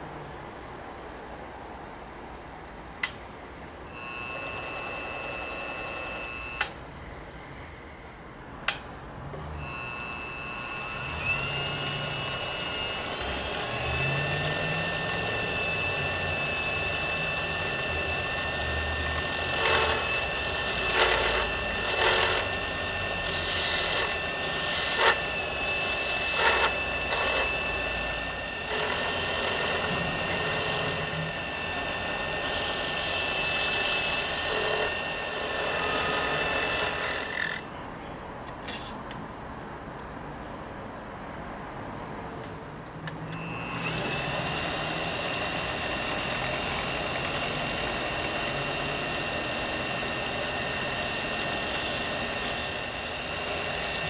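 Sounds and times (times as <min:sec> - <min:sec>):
lathe motor whining: 0:04.0 - 0:06.8, 0:09.6 - 0:37.7, 0:43.1 - 0:54.0
turning tool scraping wood: 0:19.2 - 0:22.5, 0:28.7 - 0:30.8.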